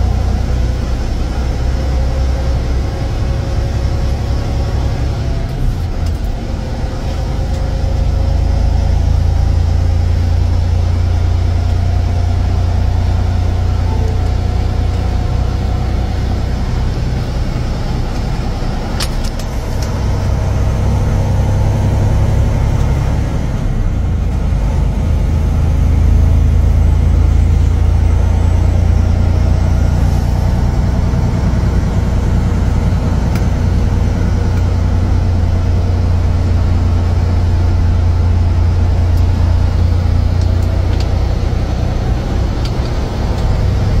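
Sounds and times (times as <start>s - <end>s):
truck engine and road drone: 0.0s - 44.0s.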